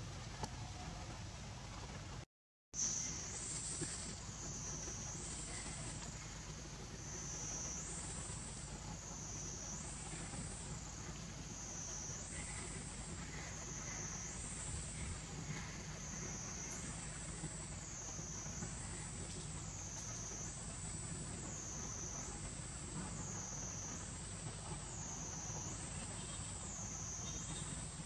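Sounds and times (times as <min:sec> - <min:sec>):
low steady rumble: 0:00.0 - 0:02.2, 0:02.8 - 0:28.0
shrill insect chorus: 0:02.8 - 0:28.0.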